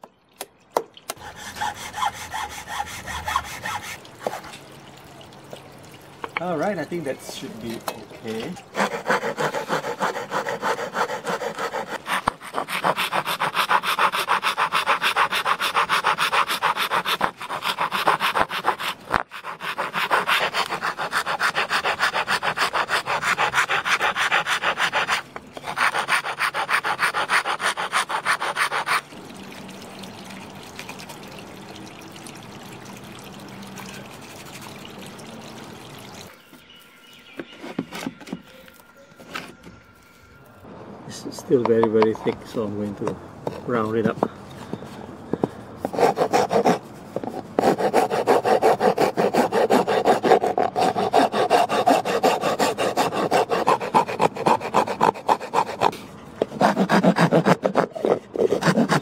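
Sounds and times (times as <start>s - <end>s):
hand file rasping on wood: 1.2s - 4.4s, 8.7s - 29.0s, 45.8s - 59.0s.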